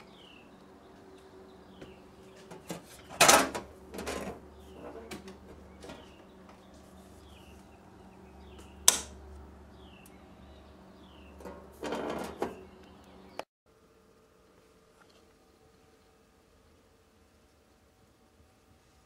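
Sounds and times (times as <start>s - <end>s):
circuit breaker click: 8.8s - 9.2s
metal panel door clanking: 11.4s - 12.6s.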